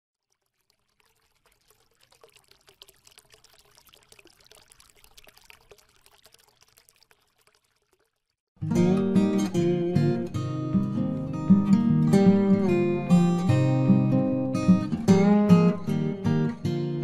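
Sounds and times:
water trickling and pouring: 0.1 - 8.5.

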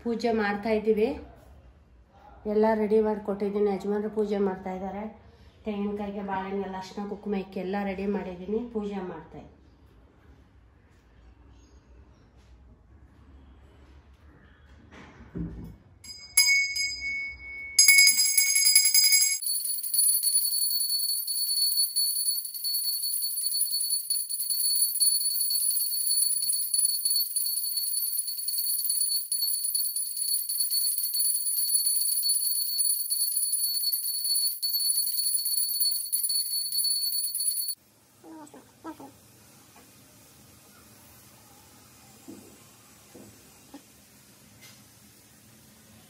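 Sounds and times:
hand bell strikes: 16.1 - 37.8
steady high bell ringing: 16.1 - 37.8.

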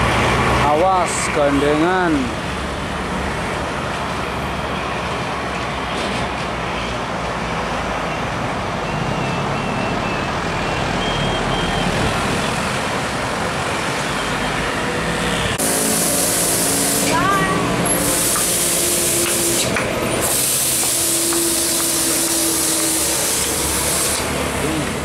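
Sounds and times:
diesel truck engine: 0.0 - 25.0
road rumble: 0.0 - 25.0.

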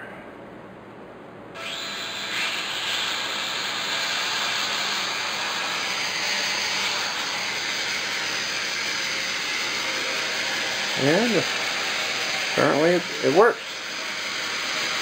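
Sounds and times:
quadcopter propellers whirring: 1.6 - 15.0.

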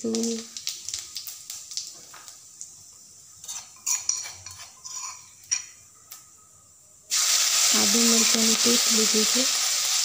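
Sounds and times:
seeds sizzling in hot oil: 0.0 - 10.0
metal spoon scraping a dish: 3.4 - 5.8.

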